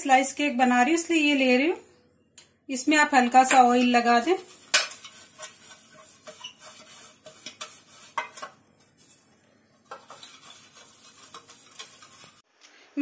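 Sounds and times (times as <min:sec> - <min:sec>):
pastry brush scraping metal tin: 0:03.4 - 0:12.4.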